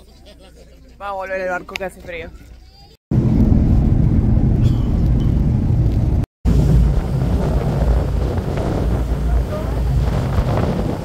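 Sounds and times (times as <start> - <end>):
wind buffeting microphone: 3.1 - 11.0
boat engine drone: 3.2 - 11.0.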